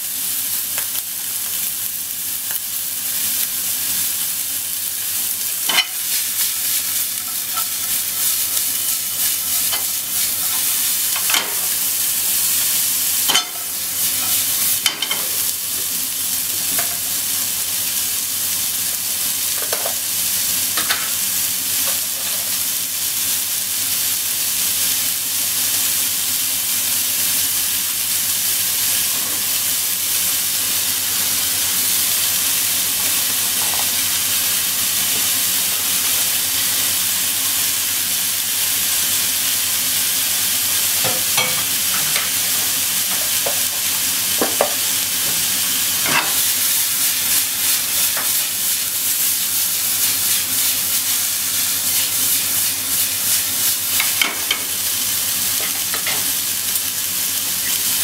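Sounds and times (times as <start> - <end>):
onion and meat sizzling in pan: 0.0 - 58.0.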